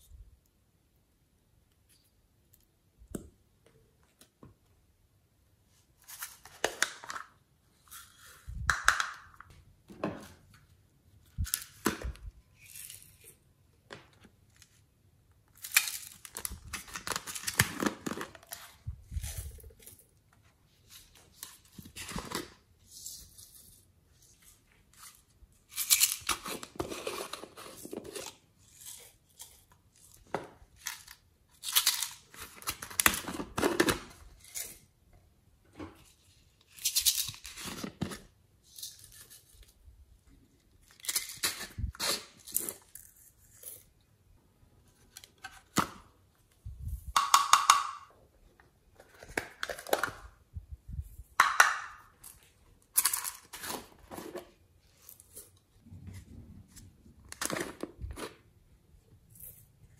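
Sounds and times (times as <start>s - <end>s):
plastic containers scraping and crinkling: 26.0s - 28.9s, 52.3s - 58.6s.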